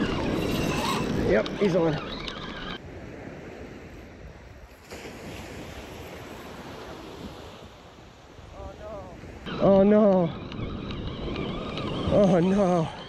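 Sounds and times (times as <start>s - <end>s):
wind buffeting microphone: 0.0s - 13.0s
ocean surf washing onto beach: 2.8s - 10.6s.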